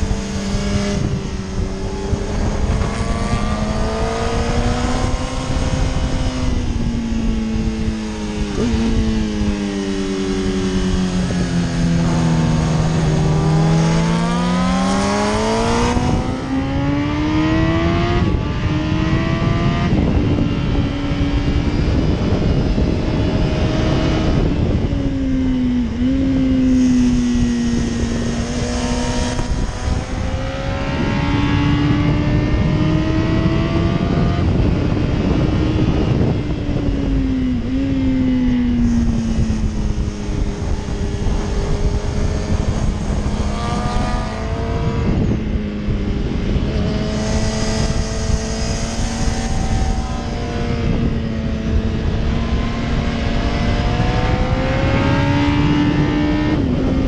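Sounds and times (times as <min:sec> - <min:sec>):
motorcycle engine revving hard: 0:00.0 - 0:57.0
wind noise: 0:00.0 - 0:57.0.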